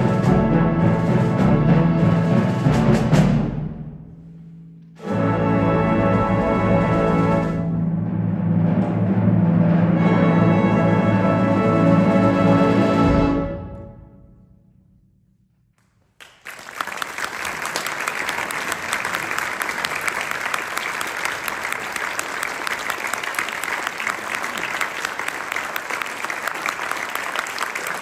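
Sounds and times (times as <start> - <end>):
audience applause: 16.2 - 28.0.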